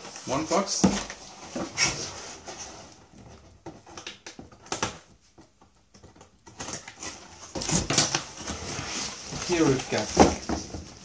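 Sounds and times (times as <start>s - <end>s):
cardboard rustling and scraping: 0.0s - 4.0s, 6.0s - 11.0s
cardboard knocks and scrapes: 0.7s - 4.5s, 6.0s - 11.0s.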